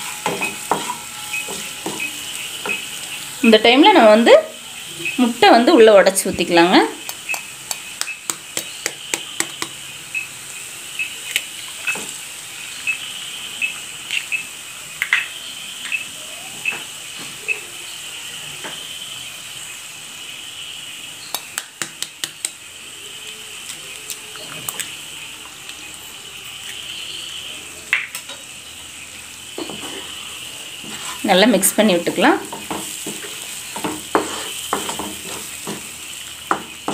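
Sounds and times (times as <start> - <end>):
onion frying in oil sizzling: 0.0 - 36.9.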